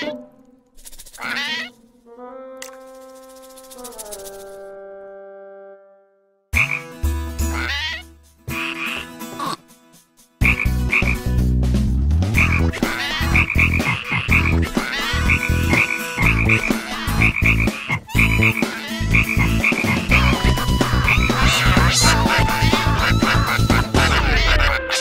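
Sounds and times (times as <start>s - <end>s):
cartoon frog croaking: 1.0s - 1.8s, 12.4s - 25.0s.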